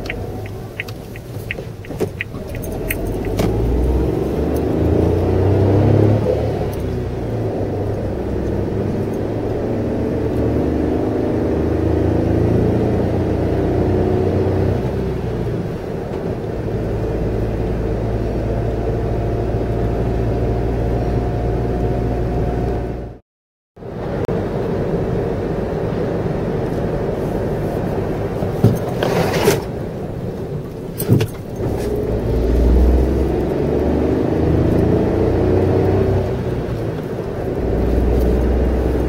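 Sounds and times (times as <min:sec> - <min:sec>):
car engine running: 0:00.0 - 0:13.6, 0:24.1 - 0:39.0
tyre and road noise: 0:00.0 - 0:23.1, 0:23.8 - 0:39.0.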